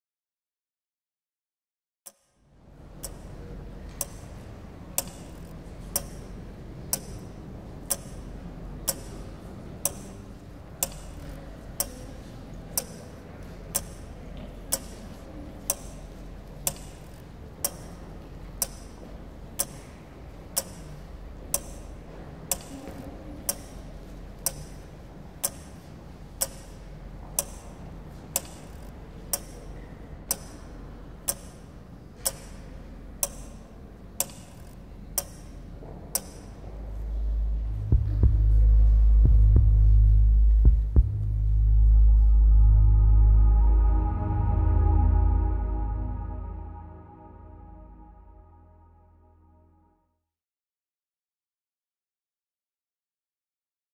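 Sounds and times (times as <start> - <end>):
clock ticking: 2.1 - 38.6
low steady hum: 2.5 - 49.9.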